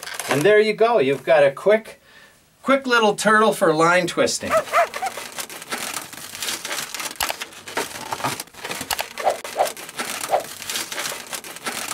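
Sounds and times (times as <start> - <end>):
balloon squeaks: 4.4 - 5.4
balloons rubbing and crinkling: 4.4 - 11.9.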